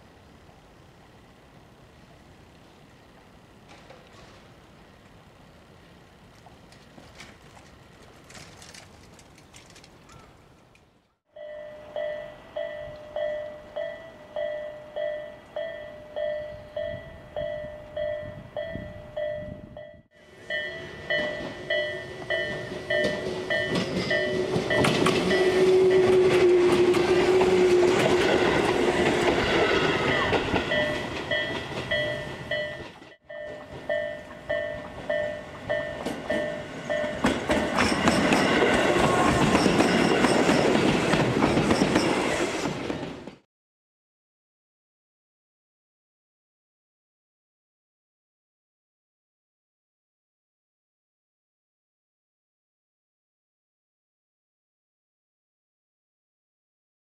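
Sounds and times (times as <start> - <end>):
level crossing warning bell: 11.3 - 26.2, 29.0 - 40.9
train wheels clacking on rails: 20.5 - 43.4.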